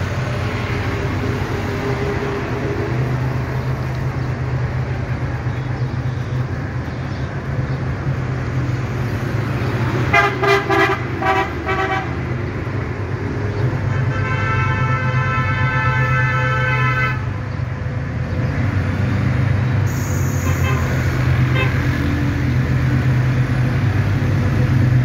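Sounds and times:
locomotive air horn: 0:10.1 - 0:12.2, 0:13.9 - 0:17.4, 0:19.9 - 0:22.0.

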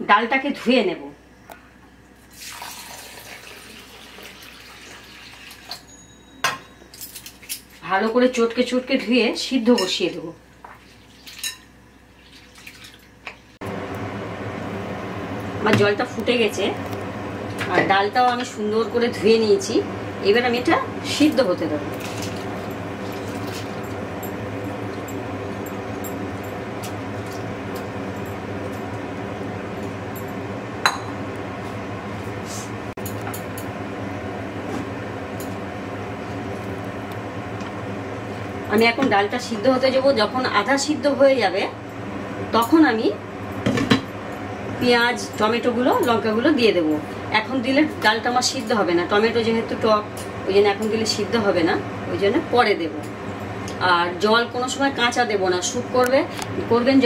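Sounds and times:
water pouring into bowl: 0:02.3 - 0:05.8.

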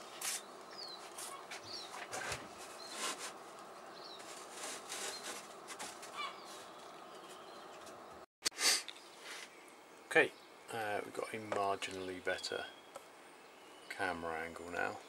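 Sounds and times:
foam board rustling and knocking: 0:04.2 - 0:06.8
steady background hiss: 0:06.7 - 0:15.0.

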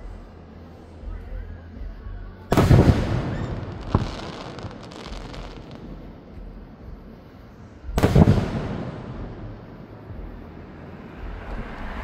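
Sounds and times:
faint firework crackling: 0:00.0 - 0:12.0
sharp firework bang: 0:02.5 - 0:04.7, 0:08.0 - 0:09.6
firework shell burst rumble: 0:02.6 - 0:06.3.

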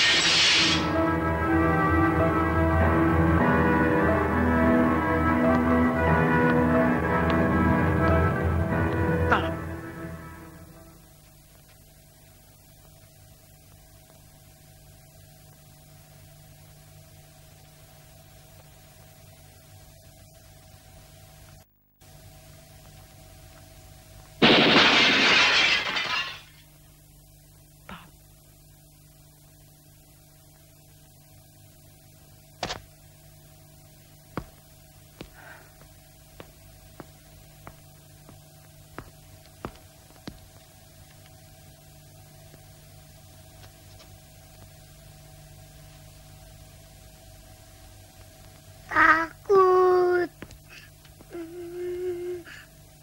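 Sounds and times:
steady hum: 0:00.0 - 0:53.0
loud shattering crash: 0:24.4 - 0:26.6.

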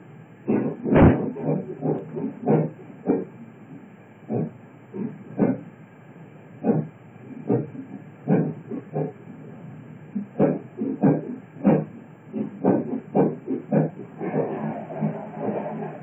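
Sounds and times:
train wheels clattering on track: 0:00.5 - 0:03.3, 0:10.4 - 0:16.0
train running rumble: 0:00.5 - 0:03.4, 0:10.1 - 0:16.0.

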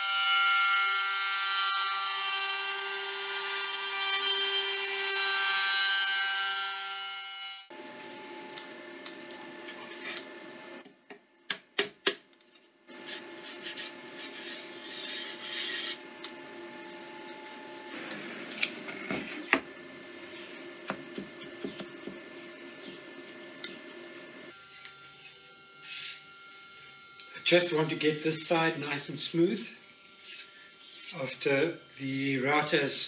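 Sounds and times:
hands brushing sawdust off wood: 0:12.9 - 0:16.0.

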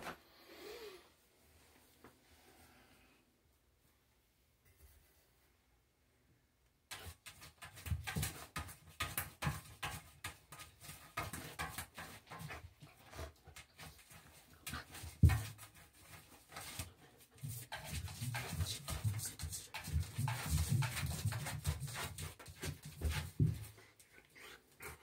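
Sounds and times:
puppy claws scratching bathtub: 0:06.9 - 0:25.0.

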